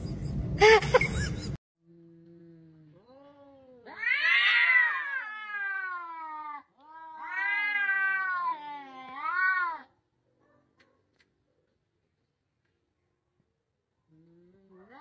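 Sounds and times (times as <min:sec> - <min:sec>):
cats yowling: 0:03.9 - 0:09.9.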